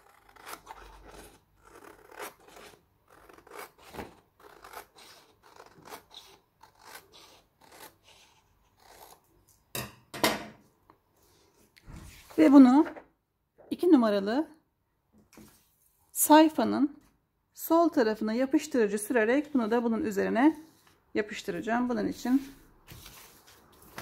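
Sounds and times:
scissors snipping paper: 0.0 - 9.2
paper rustling: 22.4 - 24.0.

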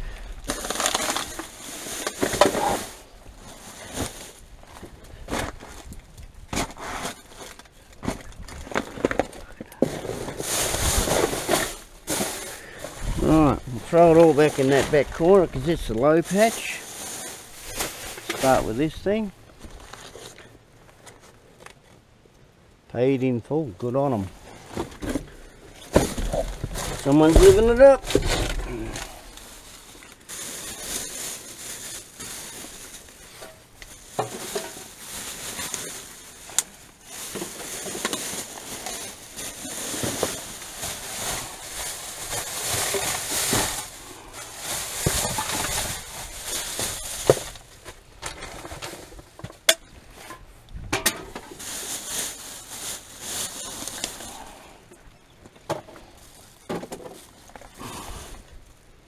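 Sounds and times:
plastic bags and paper rustling: 0.0 - 22.1, 24.1 - 59.0
items clicking and knocking: 33.3 - 35.0, 46.8 - 51.6, 55.5 - 57.8.

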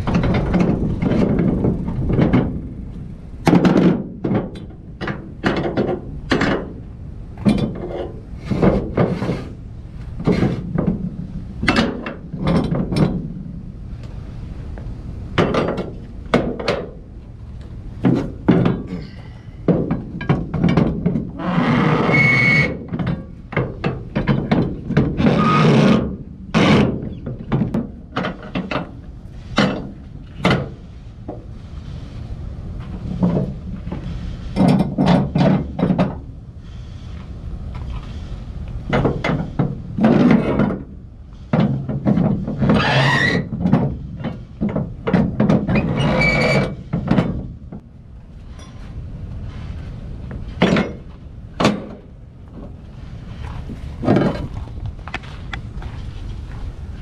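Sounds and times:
scrape with a squeak: 21.5 - 22.7, 42.7 - 43.5, 45.8 - 46.8.

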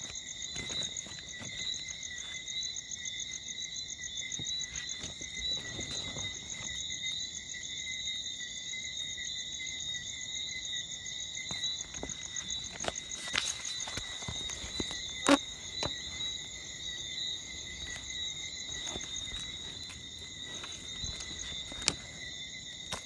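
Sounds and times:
faint rustles and knocks: 4.3 - 7.0, 11.5 - 23.0.

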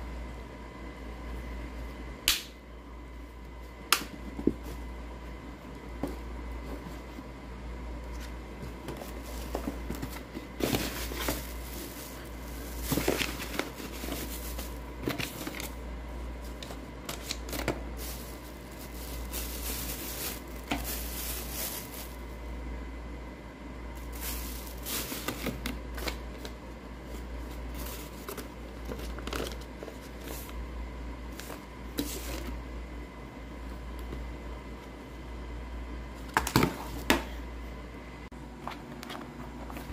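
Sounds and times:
steady low hum: 0.0 - 39.9
plastic packaging crinkling: 8.8 - 15.8, 16.4 - 22.4, 24.0 - 26.6.

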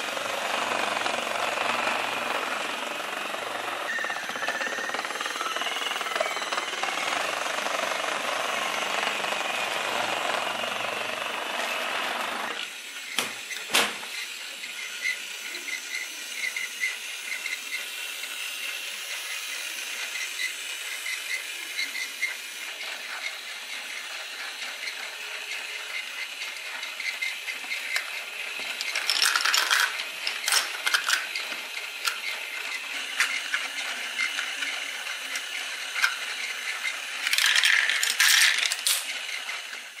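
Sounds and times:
toy bricks clicking and clattering: 3.3 - 7.6, 13.1 - 40.0.

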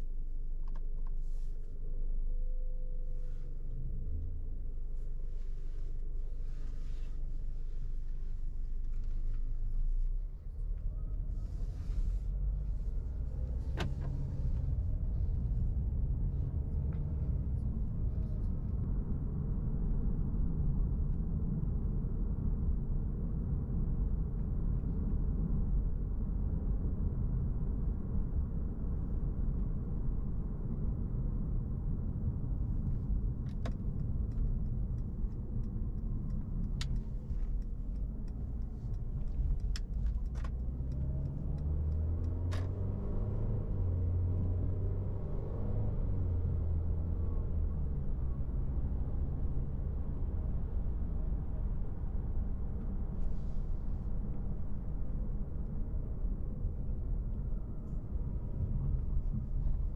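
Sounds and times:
car interior engine and road rumble: 0.0 - 59.9.

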